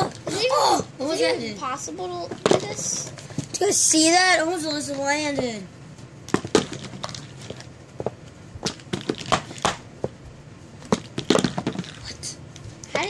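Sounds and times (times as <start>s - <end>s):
plastic sticks clattering on cardboard: 6.3s - 9.8s, 10.9s - 12.2s.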